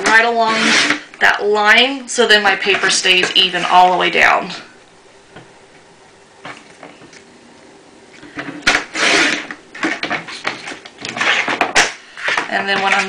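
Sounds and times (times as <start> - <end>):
paper scraping and rustling: 8.7 - 13.0.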